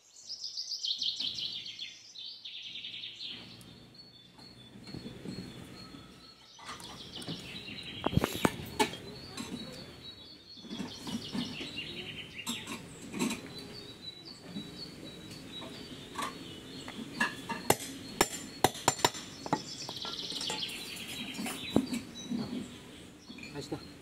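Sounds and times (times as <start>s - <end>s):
birds singing: 0.0s - 24.0s
sharp metallic taps and clinks: 15.2s - 22.1s.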